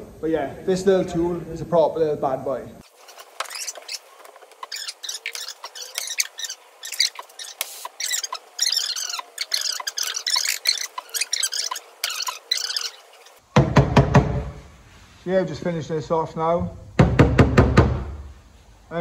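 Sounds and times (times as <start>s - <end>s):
sped up squeaky voices: 2.9s - 13.4s.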